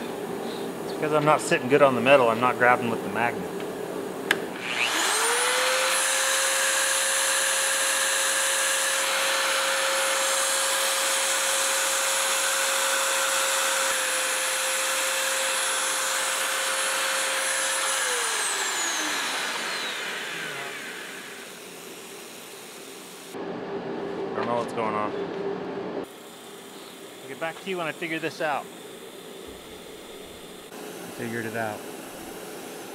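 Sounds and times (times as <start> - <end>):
magnetic drill motor whining: 4.5 - 23.4.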